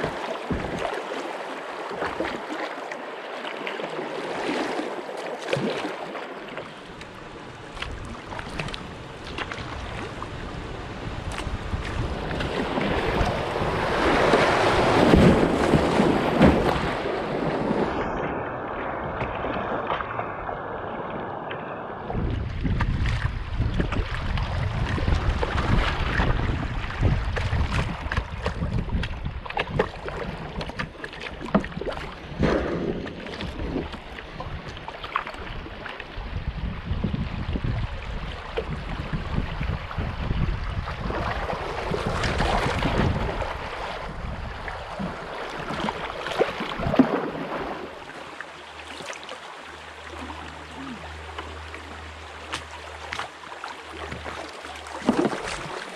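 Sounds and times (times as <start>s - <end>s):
wind rumble on microphone: 0.0s - 1.0s, 6.8s - 49.1s
paddle splashes: 0.0s - 55.9s
water splashing and rushing: 0.0s - 55.9s.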